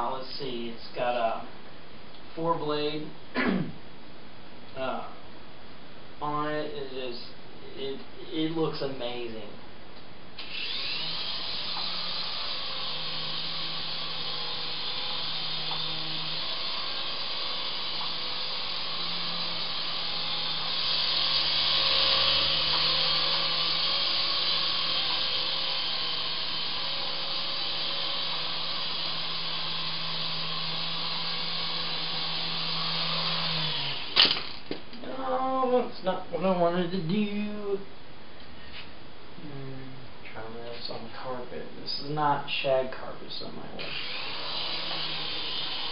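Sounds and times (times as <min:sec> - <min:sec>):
toy helicopter rotors whirring: 0:10.4 - 0:34.6, 0:43.8 - 0:45.9.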